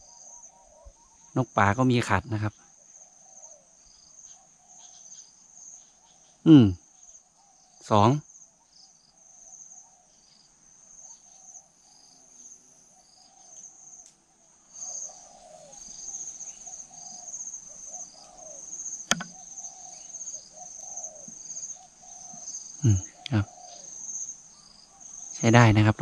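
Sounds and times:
high insect trill: 0:00.0 - 0:26.0
doves cooing: 0:14.8 - 0:25.4
sharp click: 0:19.1 - 0:19.4.

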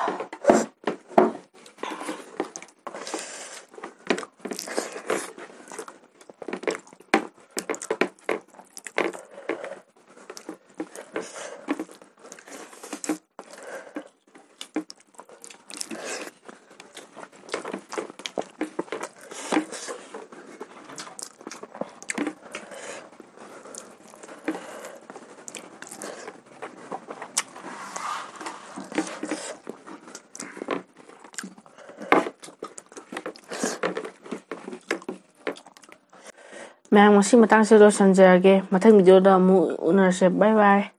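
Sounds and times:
wet chewing and lip-smacking: 0:01.6 - 0:22.7, 0:23.4 - 0:27.6, 0:29.0 - 0:36.2.

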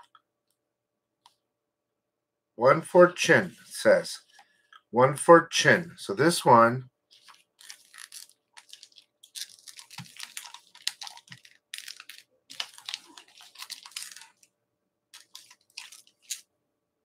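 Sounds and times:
paper rustling and crinkling: 0:07.1 - 0:14.5, 0:15.2 - 0:16.4.

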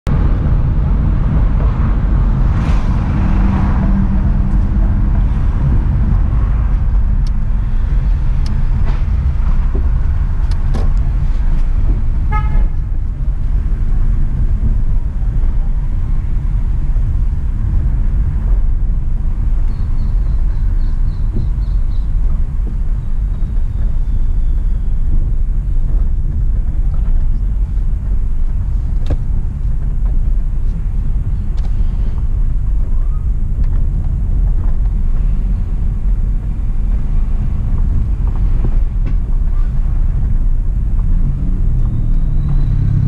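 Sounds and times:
car engine and tyres rumbling: 0:00.0 - 0:43.0
car horn toot: 0:12.2 - 0:12.9.

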